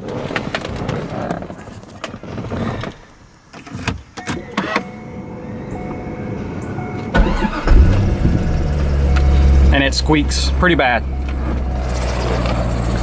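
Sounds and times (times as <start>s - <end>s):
car engine starting and running: 4.3s - 13.0s.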